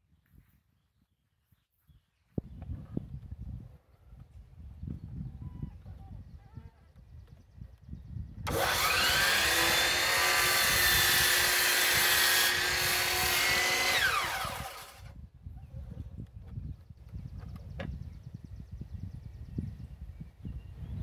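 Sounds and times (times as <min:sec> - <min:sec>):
miter saw motor whine: 0:08.5 - 0:15.1
saw blade cutting wood: 0:08.5 - 0:15.1.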